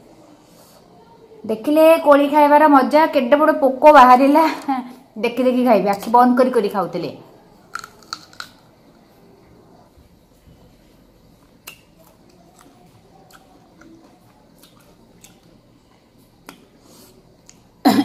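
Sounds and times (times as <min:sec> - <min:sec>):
faint chewing of fruit: 0:10.6 - 0:17.7
small mouth clicks: 0:11.5 - 0:15.5.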